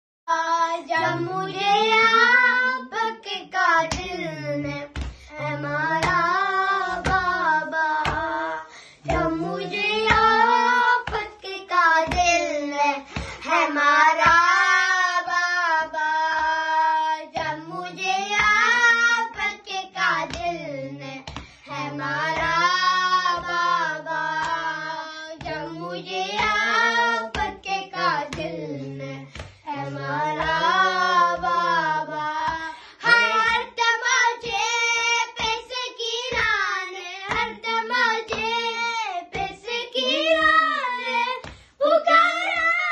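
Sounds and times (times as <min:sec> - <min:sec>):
boys singing in unison: 0:00.3 - 0:42.9
hand slaps on chest: 0:03.9 - 0:05.3, 0:06.0 - 0:08.4, 0:10.0 - 0:11.4, 0:12.0 - 0:13.4, 0:14.1 - 0:14.6, 0:20.2 - 0:20.6, 0:21.2 - 0:21.6, 0:27.3 - 0:27.7, 0:28.3 - 0:28.5, 0:29.3 - 0:30.7, 0:35.4 - 0:36.6, 0:37.3 - 0:37.7.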